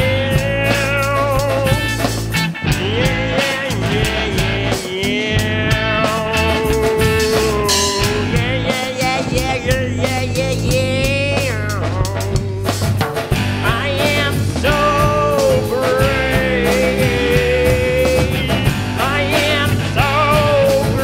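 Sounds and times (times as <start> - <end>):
rock song: 0.0 - 21.0.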